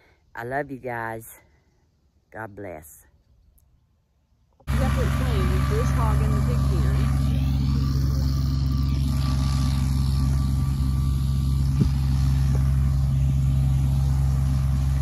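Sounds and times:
tractor engine running: 4.7s - 15.0s.

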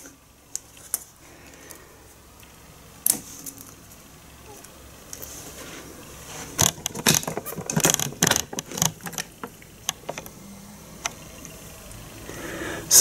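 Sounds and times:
plastic mount clicks and rattles: 6.6s - 10.3s.

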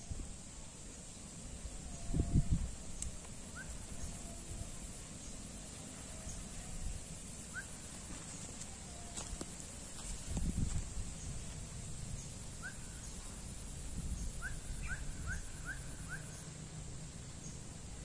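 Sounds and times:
outdoor background noise: 0.0s - 18.0s
bird chirping: 14.1s - 16.6s.

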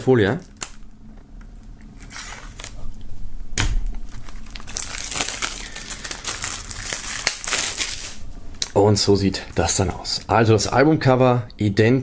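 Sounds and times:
plastic film crinkling: 1.5s - 2.9s, 4.0s - 8.2s
plastic film tearing: 2.0s - 2.8s, 4.1s - 8.2s.

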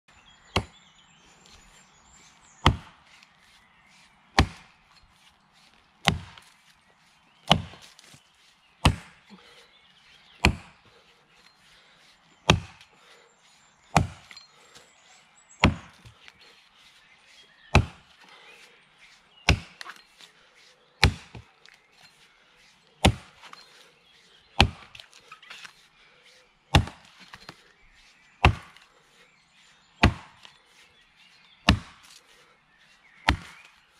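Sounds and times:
axe chopping tree trunk: 0.5s - 0.8s, 2.6s - 3.0s, 4.3s - 4.8s, 6.0s - 6.5s, 7.4s - 8.2s, 8.8s - 9.3s, 10.4s - 10.8s, 12.4s - 12.9s, 13.9s - 14.4s, 15.6s - 16.2s, 17.7s - 18.1s, 19.4s - 20.0s, 21.0s - 21.5s, 23.0s - 23.6s, 24.5s - 25.7s, 26.7s - 27.6s, 28.4s - 28.9s, 30.0s - 30.5s, 31.6s - 32.2s, 33.2s - 33.7s.

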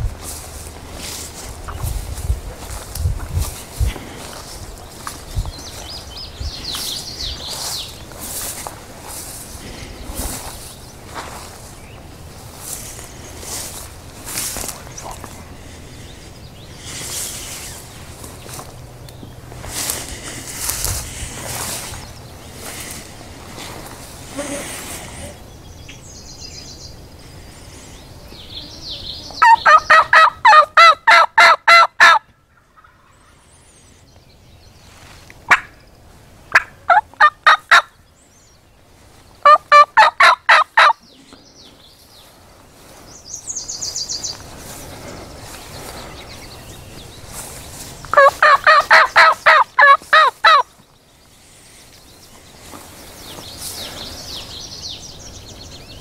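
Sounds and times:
wild turkey yelping: 29.4s - 33.4s, 36.5s - 37.9s, 39.4s - 41.0s, 48.1s - 50.7s.

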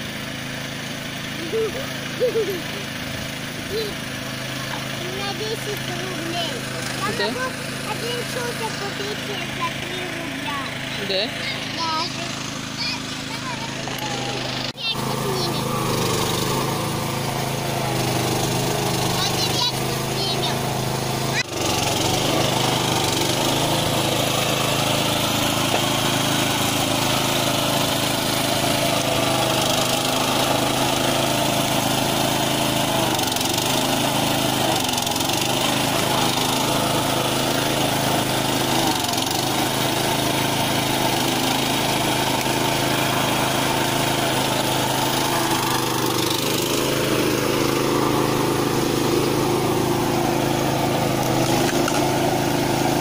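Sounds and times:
log splitter engine running: 0.0s - 53.0s.

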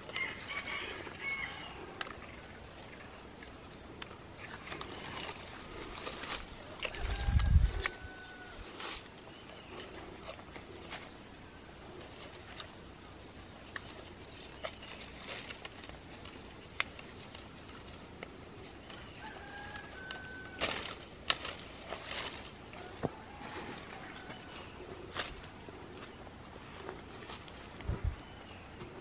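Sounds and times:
insects droning: 0.0s - 29.0s
leaves rustling: 0.0s - 29.0s
rooster crowing: 0.1s - 2.0s, 6.8s - 8.8s, 19.0s - 21.0s, 22.7s - 24.8s.

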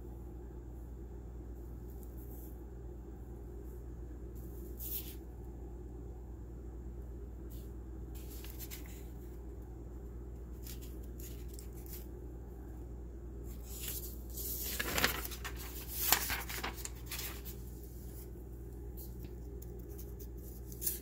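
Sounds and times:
steady low hum: 0.0s - 21.0s
paper crackles: 8.2s - 9.1s, 10.6s - 12.1s, 13.5s - 21.0s
paper rustling: 8.2s - 9.1s, 10.6s - 12.1s, 13.5s - 18.4s, 19.0s - 21.0s.

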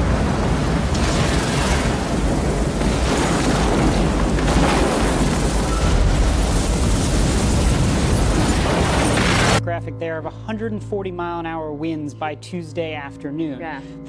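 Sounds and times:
storm wind buffeting microphone: 0.0s - 9.6s.

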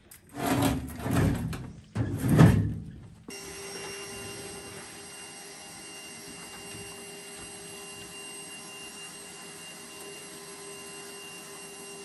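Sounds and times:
shop vacuum motor whine: 3.3s - 12.0s.

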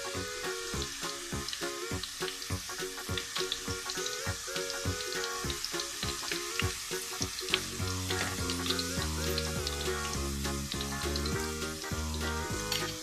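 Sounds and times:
background music with beat: 0.0s - 13.0s
chips frying in hot oil: 0.0s - 13.0s
deep bass line: 7.6s - 13.0s.

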